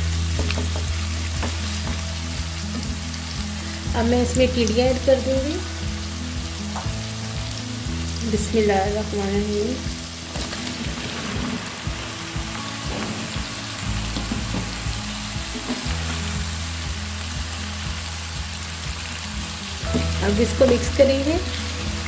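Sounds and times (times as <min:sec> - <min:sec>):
onions sizzling in oil: 0:00.0 - 0:22.0
vegetable pieces clattering into pan: 0:00.3 - 0:02.0, 0:10.3 - 0:11.9, 0:12.8 - 0:14.9, 0:15.5 - 0:16.3.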